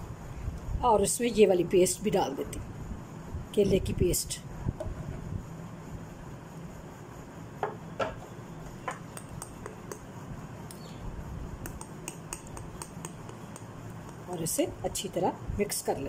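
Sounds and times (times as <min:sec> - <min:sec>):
metal spoon stirring in ceramic bowl: 0:11.6 - 0:14.6.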